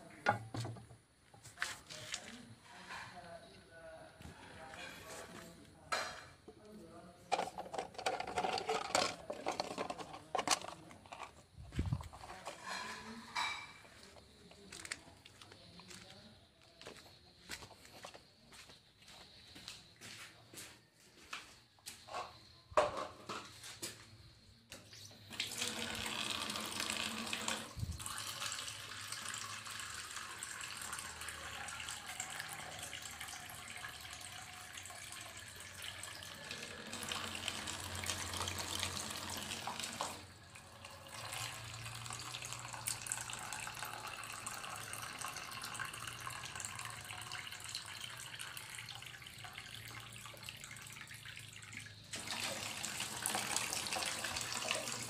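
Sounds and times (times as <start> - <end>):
tap water splashing into scoop: 25.3 - 55.0.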